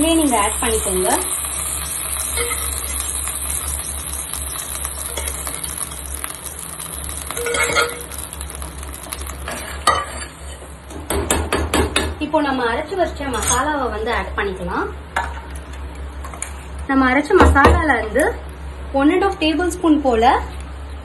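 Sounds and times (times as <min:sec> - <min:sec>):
food sizzling in a pan: 0:00.0 - 0:10.9
steel spoon stirring: 0:00.3 - 0:08.4.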